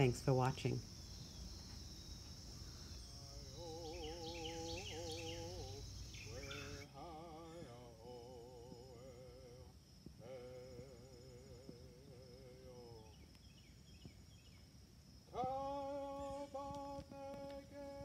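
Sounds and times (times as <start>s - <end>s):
crickets chirping: 0.0s - 18.0s
slow wavering sung melody: 2.0s - 13.3s, 15.3s - 18.0s.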